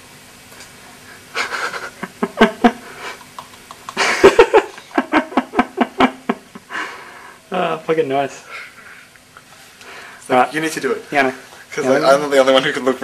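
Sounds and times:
faint steady hum: 0.0s - 13.0s
breathy wheezing laughter: 1.0s - 3.4s, 4.0s - 7.4s.

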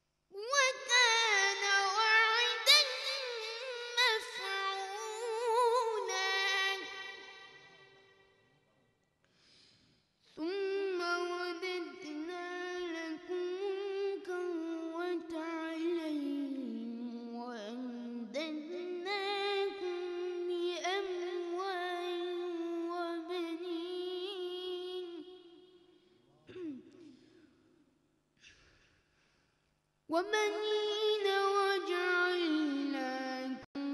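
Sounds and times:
person reciting melodically: 0.4s - 7.8s, 10.4s - 25.7s, 30.1s - 33.9s.

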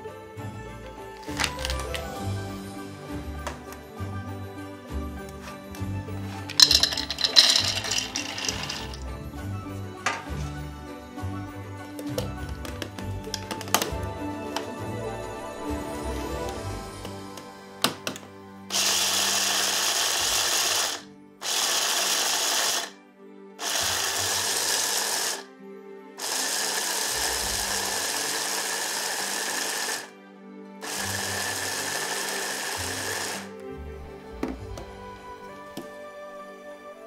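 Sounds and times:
electric blender grinding nuts: 1.2s - 2.0s, 6.2s - 9.1s, 18.7s - 22.9s, 23.6s - 25.5s, 26.2s - 30.1s, 30.8s - 33.6s.

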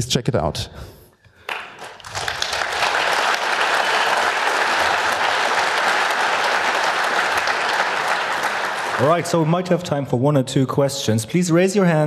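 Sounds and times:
audience applauding: 1.4s - 10.0s.

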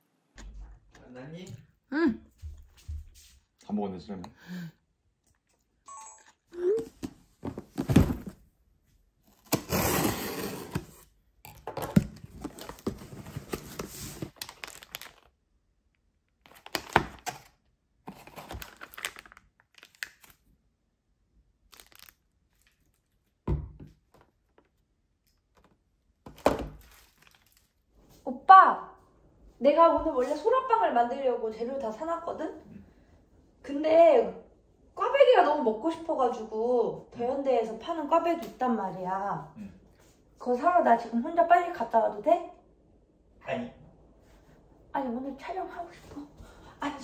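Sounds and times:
plastic and paper crinkling: 12.2s - 15.4s, 16.4s - 20.4s, 21.7s - 23.2s, 26.8s - 27.8s
packs thunking on a table: 26.2s - 27.2s.

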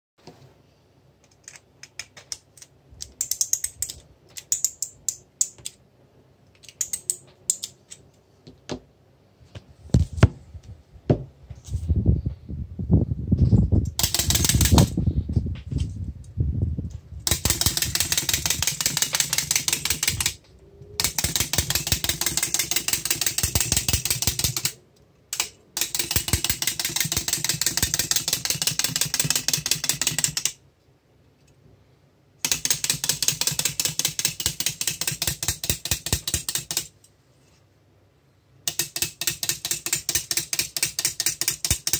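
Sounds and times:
clockwork toy clicking on wood: 14.0s - 15.0s, 17.3s - 20.4s, 21.0s - 30.6s, 32.4s - 36.9s, 38.7s - 41.9s.

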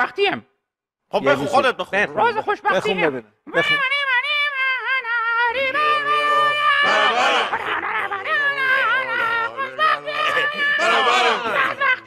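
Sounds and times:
puppet voices singing: 2.7s - 12.0s.

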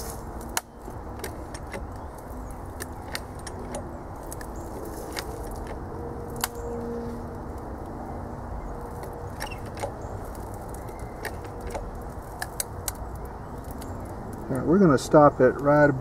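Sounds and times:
metallic clicks of hydraulic jack: 0.0s - 5.8s, 9.0s - 13.1s.

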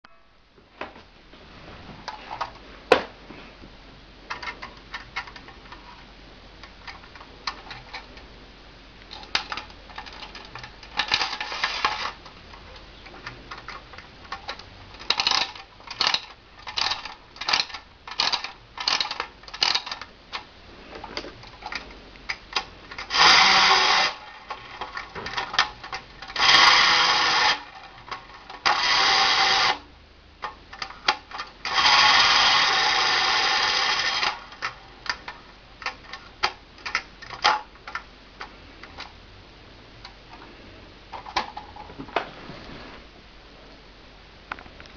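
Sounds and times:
spring motor buzzing: 11.0s - 12.2s, 23.0s - 25.6s, 26.3s - 27.8s, 28.5s - 29.8s, 31.6s - 34.6s
clockwork clicking: 14.4s - 20.1s, 23.0s - 29.8s, 30.8s - 35.2s.

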